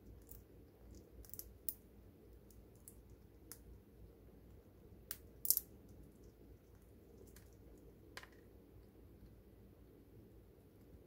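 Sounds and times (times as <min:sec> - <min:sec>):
chipmunk nibbling food: 0:00.0 - 0:09.4.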